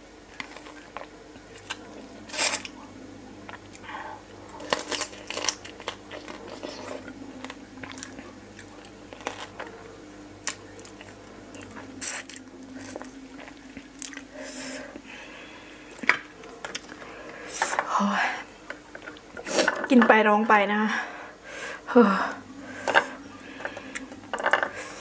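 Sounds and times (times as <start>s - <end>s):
crab shell cracking: 4.6s - 6.7s, 7.4s - 9.7s.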